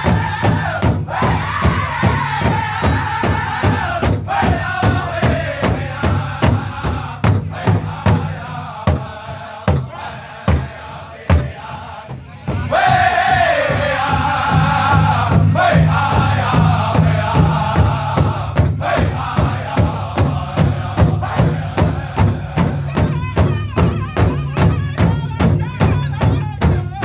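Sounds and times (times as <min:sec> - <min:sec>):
group chanting: 0:00.0 - 0:23.2
big drums beating: 0:00.0 - 0:27.0.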